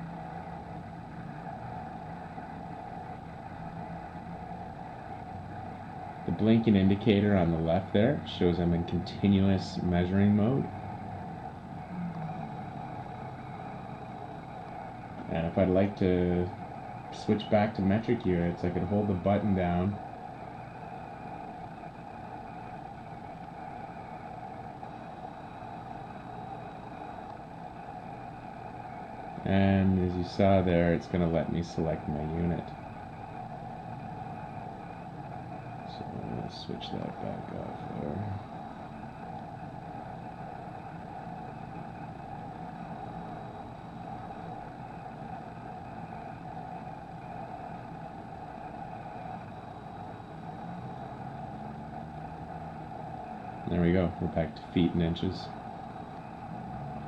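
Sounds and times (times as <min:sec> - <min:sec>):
droning background hum: 0:00.0 - 0:57.0
steady background noise: 0:00.0 - 0:57.0.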